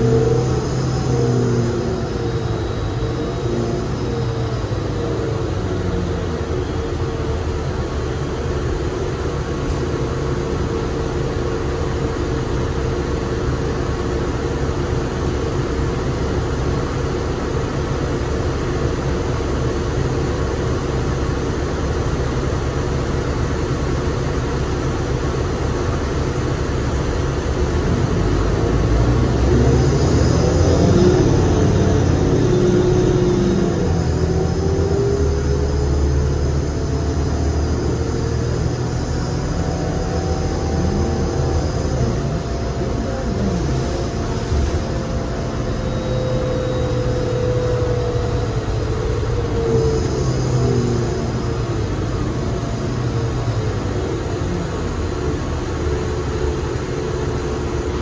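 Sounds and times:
bus diesel engine running: 0.0s - 58.0s
road noise: 0.0s - 58.0s.

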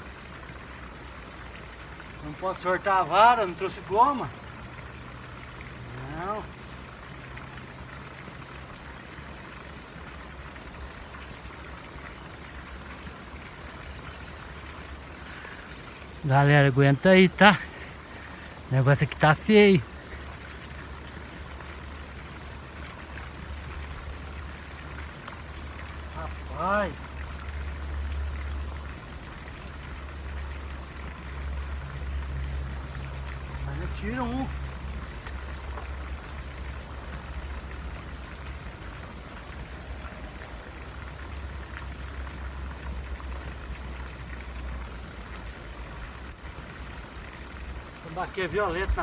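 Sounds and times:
high insect trill: 0.0s - 49.0s
open-air ambience: 0.0s - 49.0s.

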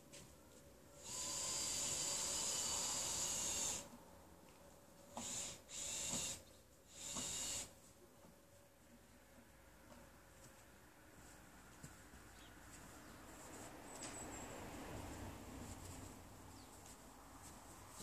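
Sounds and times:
hissing bursts: 1.0s - 3.9s, 5.2s - 7.8s.

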